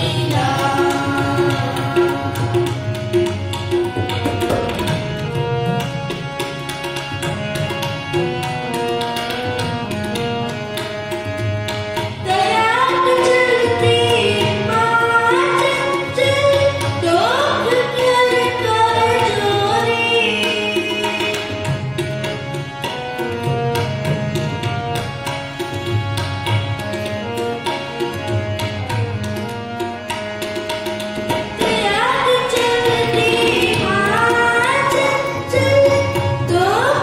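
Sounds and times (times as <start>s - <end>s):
boy singing: 0.0s - 3.2s, 12.3s - 21.5s, 31.7s - 37.0s
harmonium chords: 0.0s - 37.0s
tabla rhythm: 0.0s - 37.0s.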